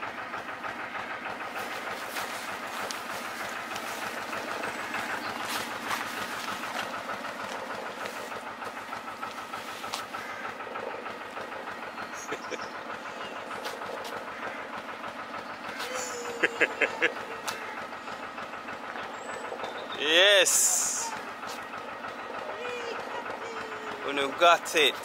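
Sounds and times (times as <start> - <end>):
diesel engine chugging: 0.0 - 25.0.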